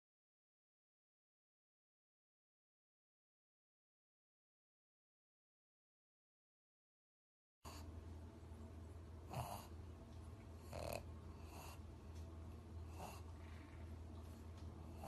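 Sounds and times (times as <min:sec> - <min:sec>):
steady low hum: 0:07.7 - 0:15.0
dog snorting through nose: 0:09.3 - 0:09.7, 0:10.6 - 0:11.8, 0:12.9 - 0:13.8.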